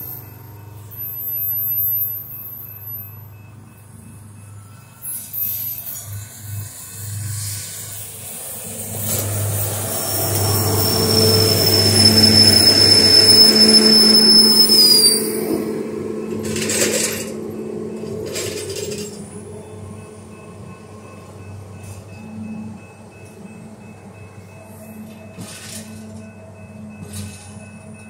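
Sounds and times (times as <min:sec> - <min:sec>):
rail machine engine humming: 0:00.0 - 0:28.0
high steady whine: 0:06.2 - 0:20.4.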